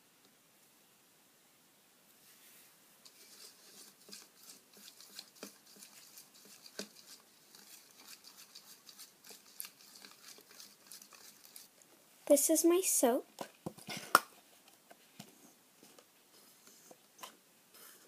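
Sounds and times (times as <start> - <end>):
wet stirring: 3.0 - 11.9.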